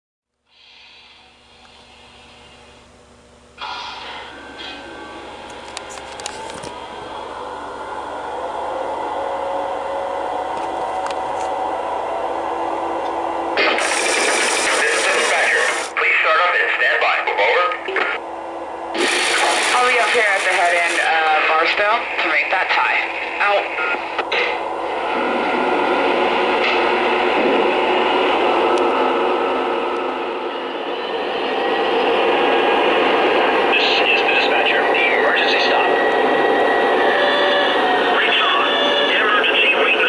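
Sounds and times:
model train humming on track: 19.0 - 40.0.

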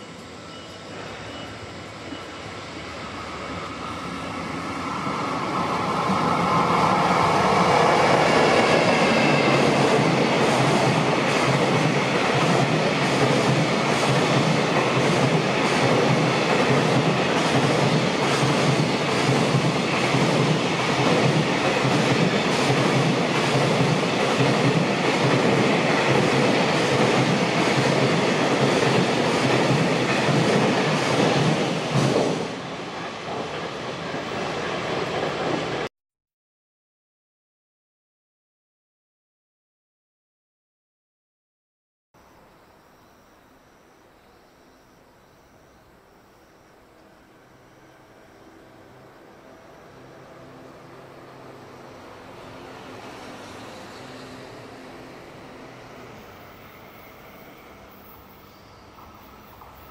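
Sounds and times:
electric locomotive whine: 0.0 - 35.9, 42.2 - 59.9
train wheels rumbling on rails: 0.0 - 35.9.

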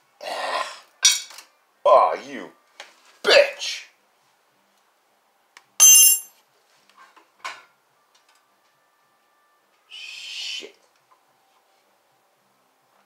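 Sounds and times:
metal tool clinking on metal: 5.8 - 6.3.

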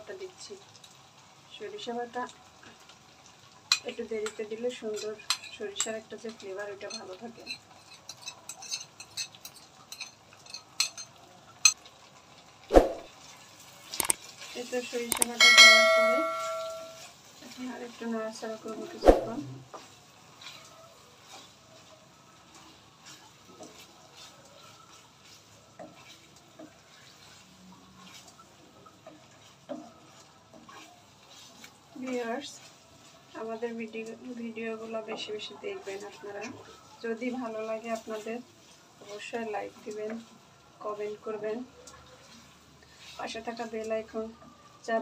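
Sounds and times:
faint sizzle: 0.0 - 45.0
spoon clinking and scraping bowl: 6.8 - 11.8, 15.1 - 17.1
spoon knocking against pan: 15.1 - 17.0.

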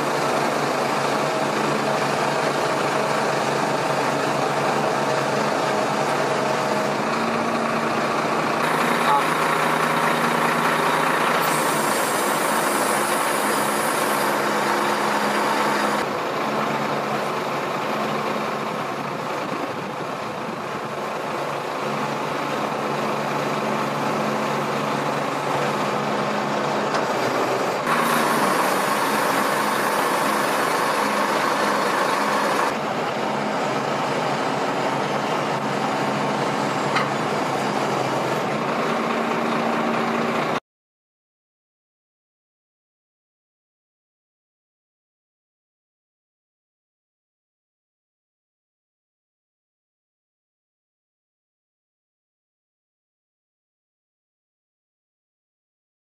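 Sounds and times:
truck engine and hydraulic hum: 0.0 - 40.6
hydraulic hiss: 11.3 - 14.4.

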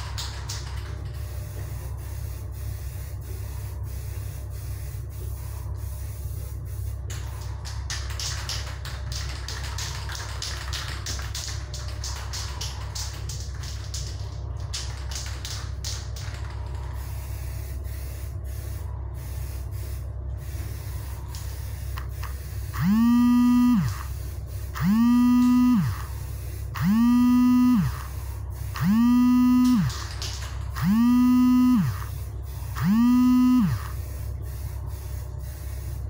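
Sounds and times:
spray can ball rattling: 0.0 - 2.7, 6.6 - 22.8, 29.9 - 30.8
low hum: 16.6 - 36.0
loud electric buzz: 17.2 - 36.0.

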